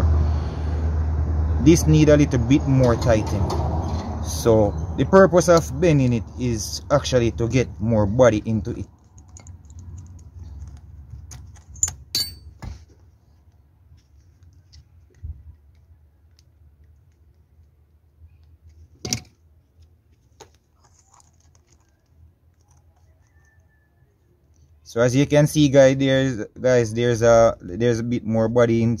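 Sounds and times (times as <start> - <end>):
metal clamp and spanner clicking: 9.0 - 10.8, 11.5 - 12.6.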